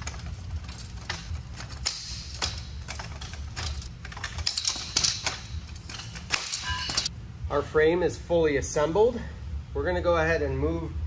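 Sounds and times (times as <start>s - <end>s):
metal bows clicking and clattering: 0.0s - 7.1s
steady low hum: 0.0s - 11.0s.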